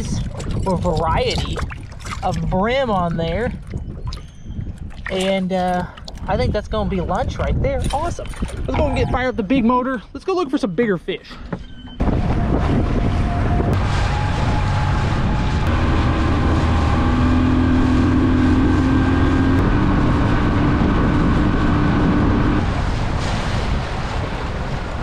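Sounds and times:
outboard motor running: 0:00.0 - 0:06.4, 0:11.5 - 0:23.2
wind on microphone: 0:00.0 - 0:09.8, 0:11.7 - 0:25.0
water rushing along hull: 0:00.0 - 0:10.0, 0:11.6 - 0:25.0.

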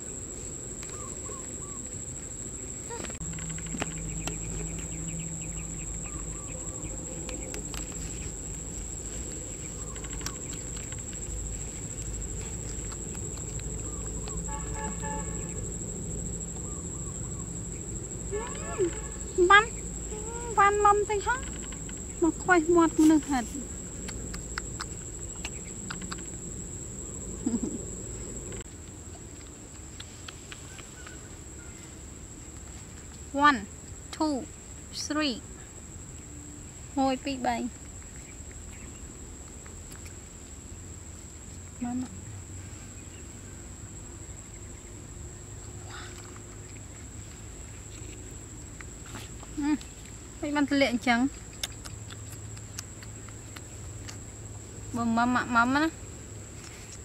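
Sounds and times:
high-pitched insect drone: 0:00.0 - 0:28.6
insect chirps: 0:00.0 - 0:57.0.

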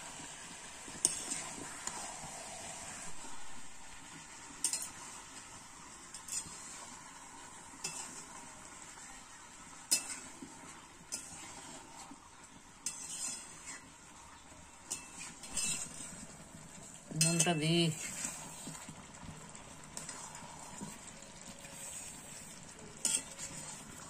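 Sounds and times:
frying sizzle: 0:00.0 - 0:24.0
metal utensil scraping pan: 0:00.9 - 0:01.7, 0:04.6 - 0:05.2, 0:06.1 - 0:07.0, 0:07.8 - 0:08.4, 0:09.9 - 0:12.2, 0:12.8 - 0:13.9, 0:14.8 - 0:19.0, 0:19.9 - 0:24.0.

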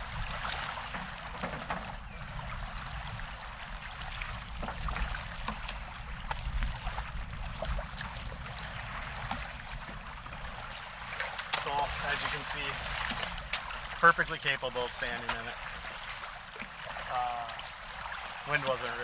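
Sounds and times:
wind rumble on microphone: 0:00.0 - 0:14.0
waves lapping against kayak hull: 0:00.0 - 0:19.0.

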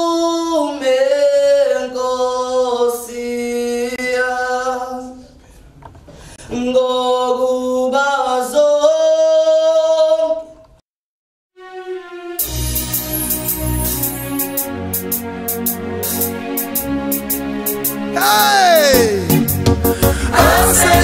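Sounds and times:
man singing a cappella: 0:00.0 - 0:05.3, 0:06.5 - 0:10.5, 0:18.2 - 0:19.4.

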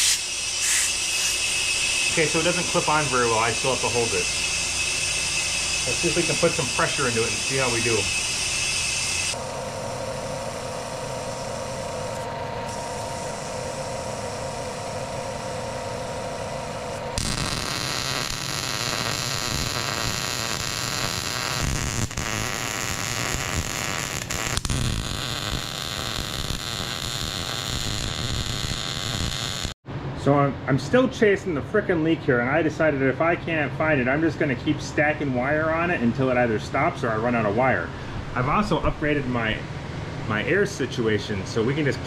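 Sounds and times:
compressed air hiss: 0:00.0 - 0:09.4
welder crackling: 0:00.0 - 0:29.8.

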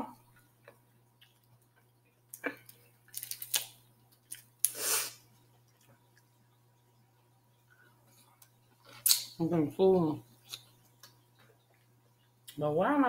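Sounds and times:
crab shell cracking: 0:02.3 - 0:04.7.

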